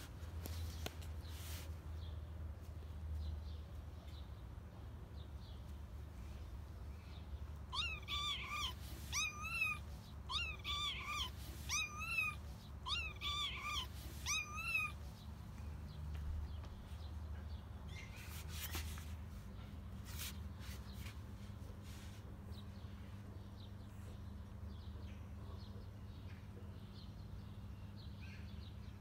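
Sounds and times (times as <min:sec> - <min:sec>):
kitten meowing: 0:07.7 - 0:15.0.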